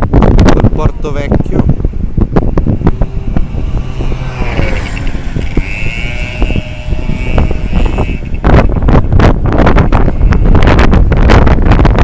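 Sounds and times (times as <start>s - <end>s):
wind buffeting microphone: 0.0s - 12.0s
vehicle engine passing: 1.6s - 9.2s.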